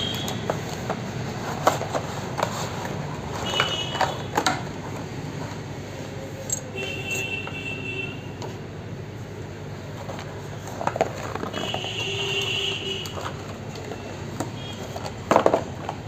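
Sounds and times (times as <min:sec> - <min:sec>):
packaging clicks and knocks: 0:00.0 - 0:05.1, 0:10.0 - 0:16.0
steady background noise: 0:00.0 - 0:16.0.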